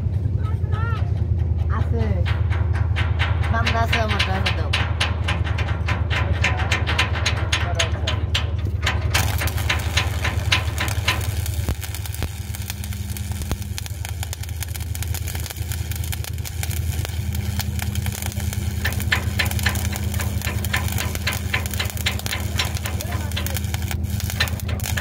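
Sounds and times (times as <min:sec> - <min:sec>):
low machine hum: 0:00.0 - 0:25.0
welding arc crackling and hissing: 0:03.1 - 0:25.0.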